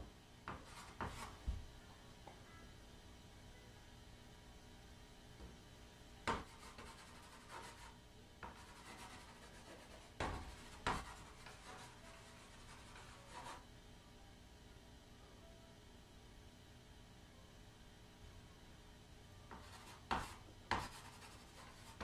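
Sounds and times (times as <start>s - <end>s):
chalk scratching on board: 0.5s - 1.4s, 6.3s - 13.6s, 19.5s - 22.0s
chalk tapping board: 0.5s - 1.4s, 6.3s - 13.6s, 19.5s - 22.0s.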